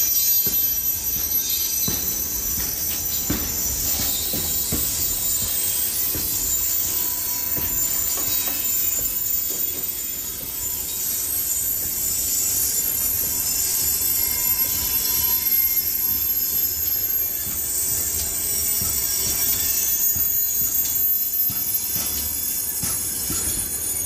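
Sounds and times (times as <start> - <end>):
wheels knocking on rail joints: 0.0 - 10.9, 16.8 - 24.0
high-pitched wheel squeal: 0.0 - 24.0
train wagons rumbling: 0.0 - 24.0.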